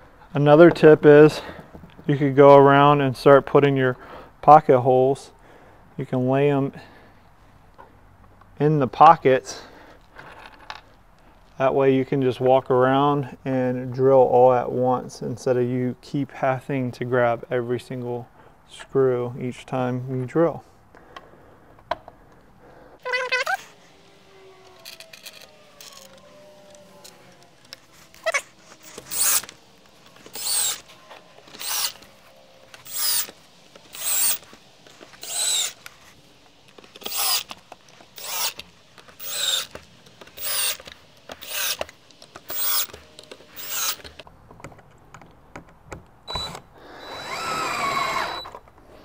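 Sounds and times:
cordless drill driving screws: 23.1s - 35.9s, 36.8s - 44.2s, 46.3s - 48.6s.

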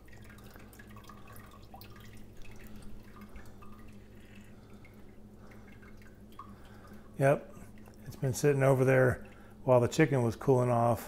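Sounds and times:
broth dripping: 0.0s - 11.0s
steady low hum: 0.0s - 11.0s.

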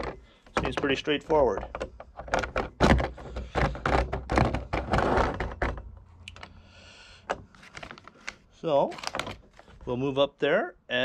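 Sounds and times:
metal hardware clattering: 0.0s - 6.5s.

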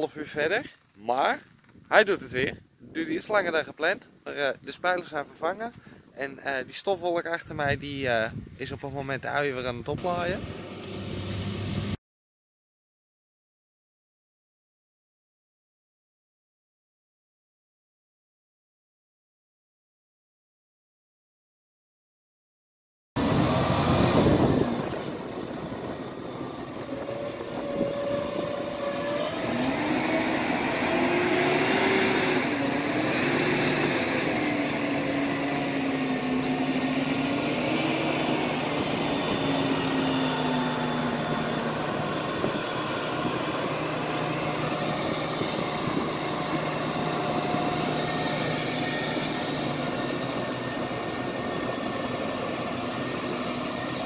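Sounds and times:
tracked machine engine droning: 9.9s - 12.0s, 23.2s - 54.0s.

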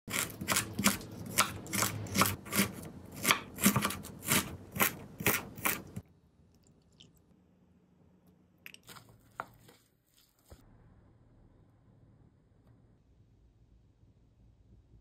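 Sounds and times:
knife chopping on wooden board: 0.1s - 6.0s.

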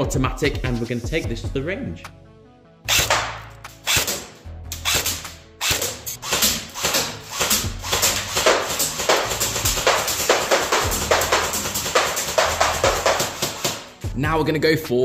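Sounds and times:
hard sharp hits: 4.9s - 13.9s
music with bass line: 7.3s - 14.6s.

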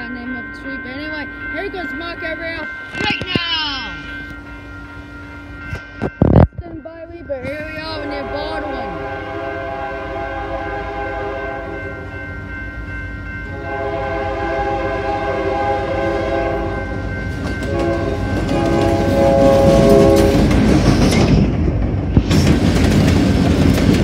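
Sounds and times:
locomotive engine and wheels: 0.0s - 24.0s
locomotive air horn blasts: 8.0s - 12.0s, 13.5s - 17.0s, 17.6s - 20.5s.

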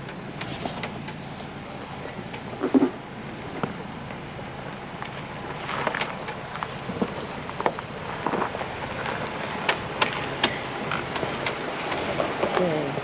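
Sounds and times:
engine and road rumble: 0.0s - 13.0s
sharp clicks and knocks: 2.2s - 3.0s, 9.1s - 12.6s.

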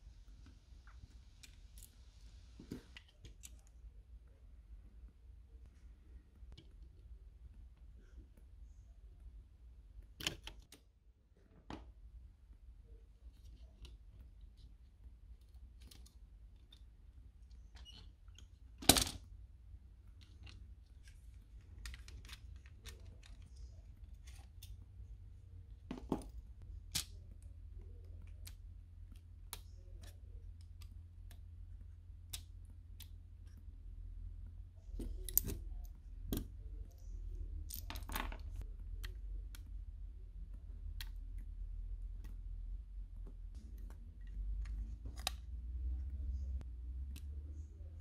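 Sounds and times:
faint low hum: 0.0s - 48.0s
clicks of plastic parts and tweezers: 15.4s - 19.3s, 43.2s - 45.6s.

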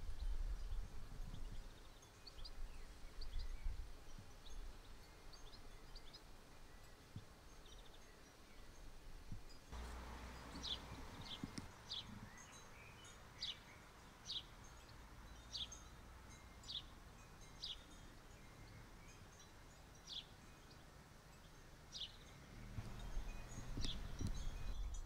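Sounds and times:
faint outdoor background hiss: 0.0s - 25.0s
bird chirping: 9.7s - 25.0s.

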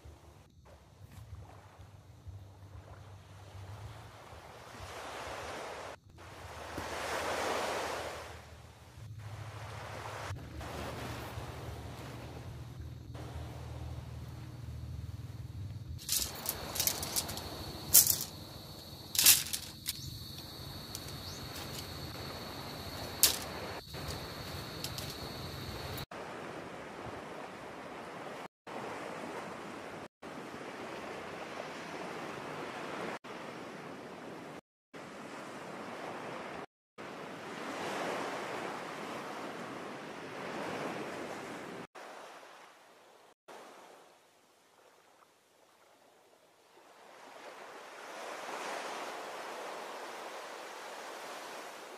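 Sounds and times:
steady hiss: 13.2s - 26.0s
tent poles clacking: 16.0s - 18.4s, 19.0s - 22.2s, 23.0s - 26.0s
surf washing on beach: 46.8s - 51.9s.

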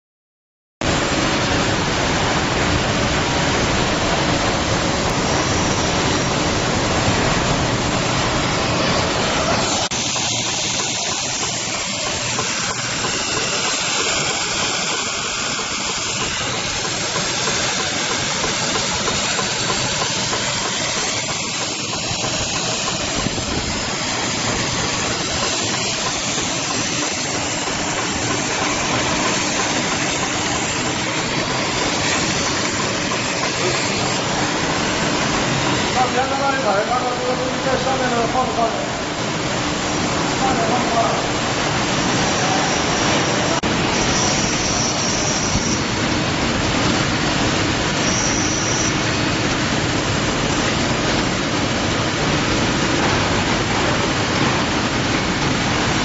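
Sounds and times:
sewing machine running: 8.5s - 36.2s.

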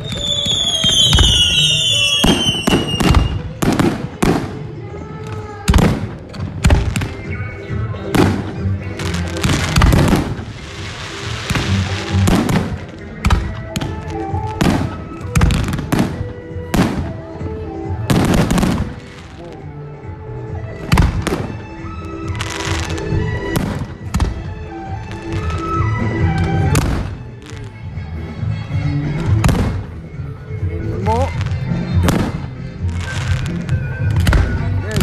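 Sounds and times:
fireworks bangs: 0.0s - 4.7s, 8.1s - 17.2s, 20.9s - 27.7s
music playing: 0.0s - 35.0s.

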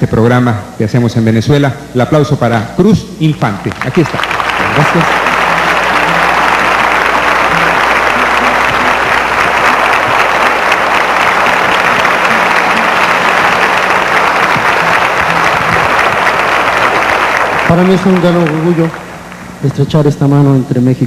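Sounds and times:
audience applauding: 3.6s - 20.1s.

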